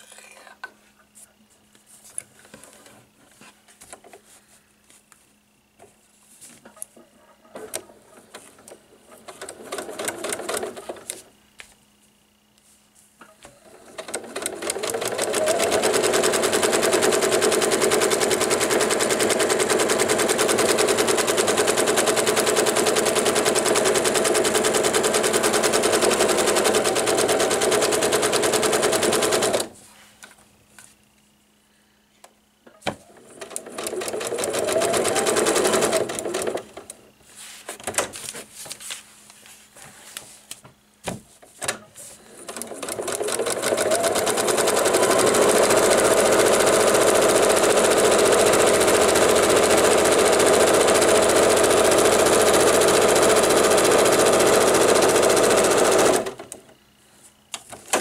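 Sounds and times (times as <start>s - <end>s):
sewing machine stitching: 7.5s - 11.2s, 13.4s - 29.7s, 33.0s - 36.9s, 42.3s - 56.6s
sewing machine clicks: 8.6s - 11.2s, 13.4s - 29.7s, 33.2s - 37.0s, 42.4s - 56.6s.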